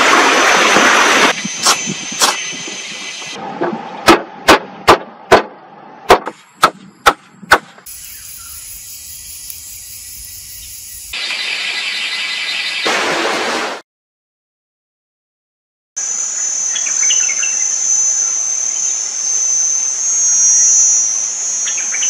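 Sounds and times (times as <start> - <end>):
hatchet striking wood: 4.1 - 5.5, 6.1 - 7.9
moka pot hissing: 7.9 - 11.2.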